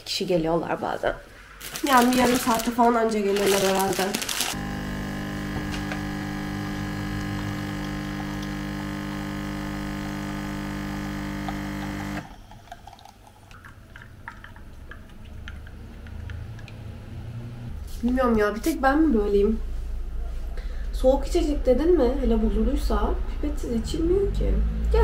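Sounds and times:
espresso machine pump humming: 4.3 - 12.4.

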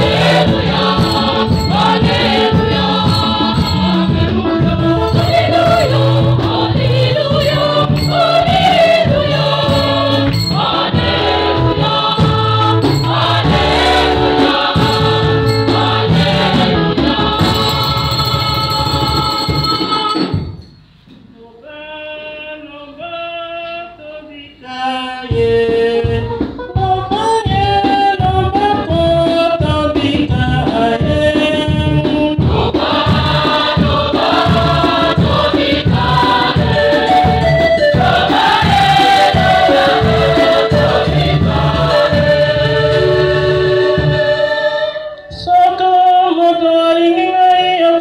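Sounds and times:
choir and congregation singing hymn: 0.0 - 18.8, 27.1 - 47.5
low drum-like beat: 25.3 - 43.0.

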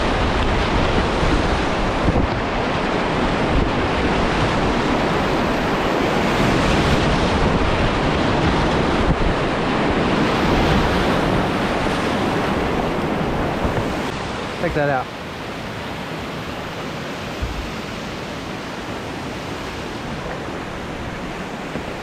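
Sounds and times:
wind buffeting on microphone: 0.0 - 14.6, 15.5 - 22.0
whitewater rushing: 0.0 - 22.0.

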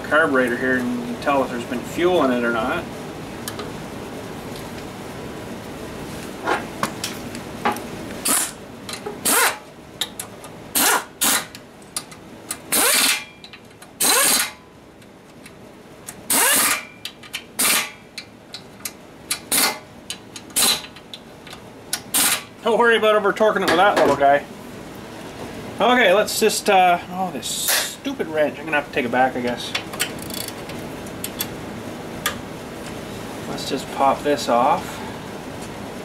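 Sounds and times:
cordless power wrench whirring: 9.2 - 9.6, 14.0 - 14.6, 16.3 - 16.8, 22.1 - 22.4.

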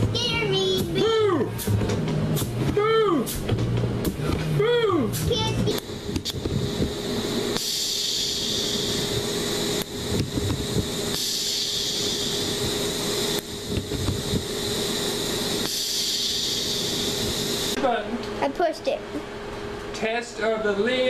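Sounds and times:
compressed air hissing: 5.1 - 17.8.

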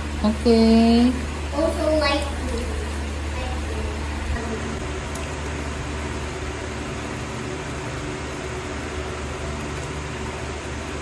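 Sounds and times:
mechanical hum with hiss: 0.0 - 11.0.

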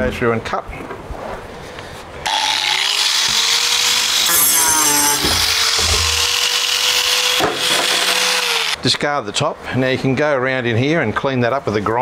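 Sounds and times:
angle grinder cutting plastic: 2.3 - 8.8
falling squeal: 4.2 - 6.3.

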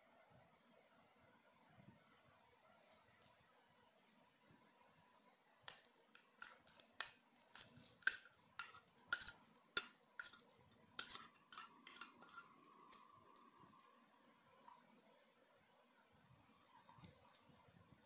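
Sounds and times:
spoon clinking against a metal bowl: 6.4 - 13.5.

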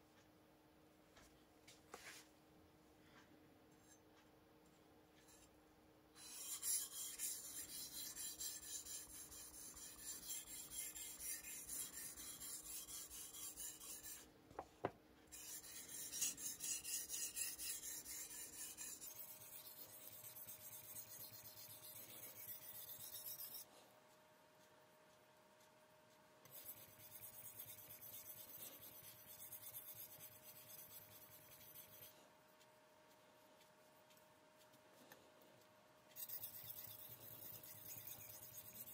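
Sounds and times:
knife scraping on whetstone: 6.2 - 14.2, 15.3 - 23.7, 26.5 - 32.1, 36.2 - 38.9.

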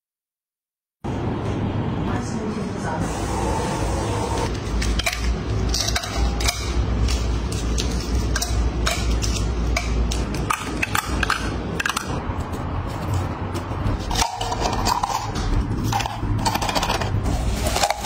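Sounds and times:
plastic jars clicking: 7.8 - 12.2.

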